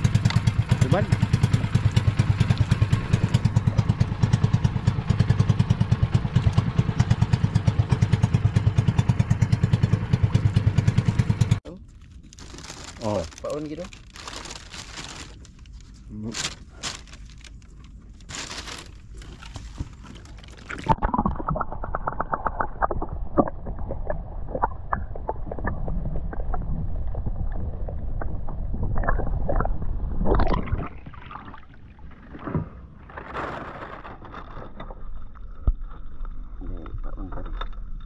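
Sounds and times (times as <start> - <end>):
underwater rumbling wash: 0.0 - 11.6, 20.3 - 37.4
underwater clicks and gurgles: 1.6 - 4.2, 18.9 - 38.0.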